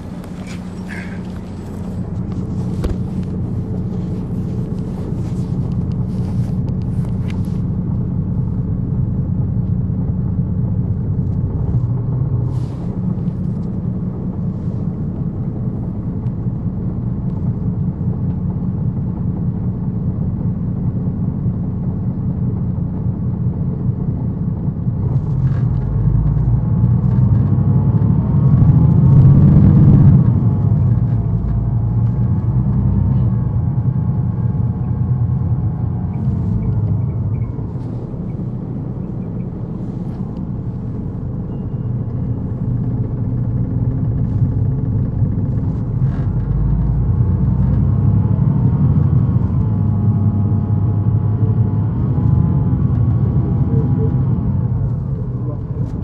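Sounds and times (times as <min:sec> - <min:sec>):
bus diesel engine accelerating: 0:00.0 - 0:56.0.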